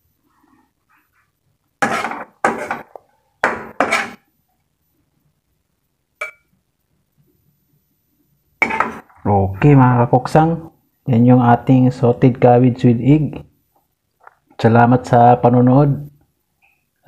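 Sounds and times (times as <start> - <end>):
utensil scraping ceramic plate: 1.8 - 4.2
metal clinking on plate: 6.2 - 6.5.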